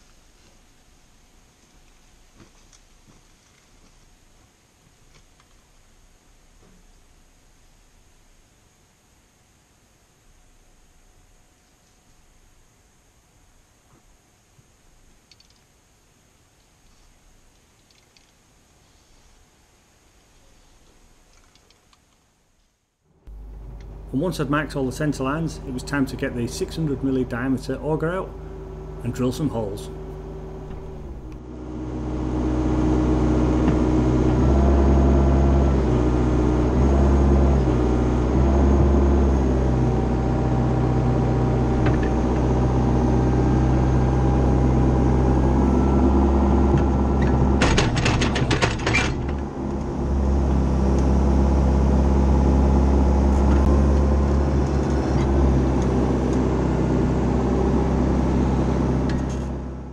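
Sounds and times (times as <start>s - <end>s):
hydraulic auger engine running: 23.3s - 59.9s
rattle of sharp knocks: 47.6s - 49.5s.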